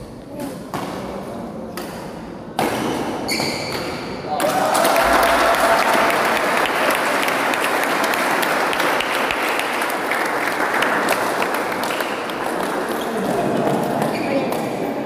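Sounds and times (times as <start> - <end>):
spectators applauding: 4.4 - 14.0.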